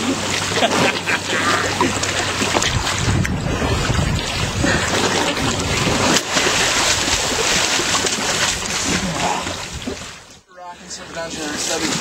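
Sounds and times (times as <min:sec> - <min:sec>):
water lapping against canoe hull: 0:00.0 - 0:12.0
wind on microphone: 0:01.8 - 0:10.4.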